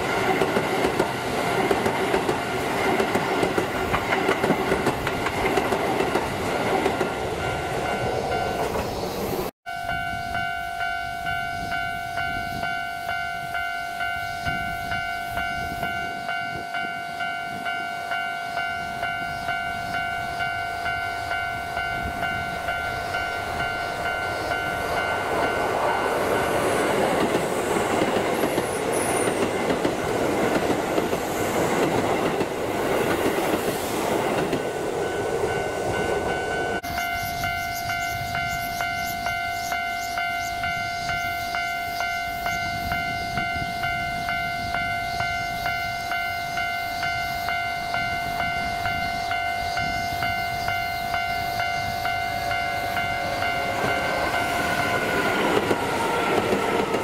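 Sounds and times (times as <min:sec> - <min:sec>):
train wheels rumbling over rails: 0:00.0 - 0:09.5, 0:21.8 - 0:40.7, 0:47.4 - 0:57.0
level-crossing alarm ringing: 0:00.0 - 0:57.0.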